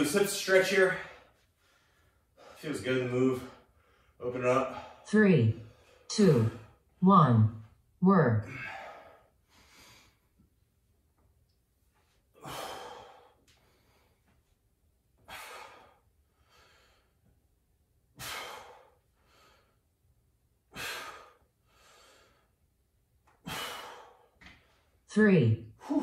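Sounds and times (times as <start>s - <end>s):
man breathing hard: 0.9s - 2.7s, 8.4s - 10.4s, 12.2s - 14.5s, 15.2s - 17.4s, 18.1s - 20.0s, 20.7s - 22.7s, 23.3s - 25.0s.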